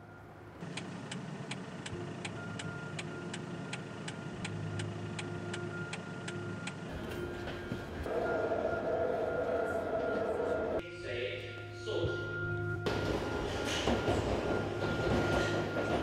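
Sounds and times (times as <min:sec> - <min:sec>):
turn signal ticking: 0:00.6 - 0:07.6.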